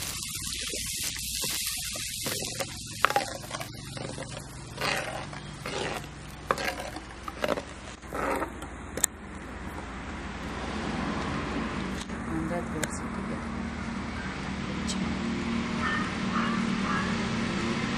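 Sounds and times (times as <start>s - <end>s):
steady hiss: 0.0s - 7.2s
ladle scraping cooking pot: 1.4s - 8.6s.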